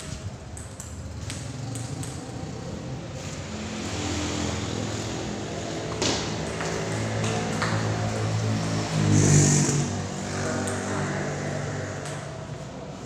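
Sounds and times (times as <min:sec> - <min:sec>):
table tennis ball clicks: 0:00.5 - 0:02.4, 0:10.5 - 0:10.9.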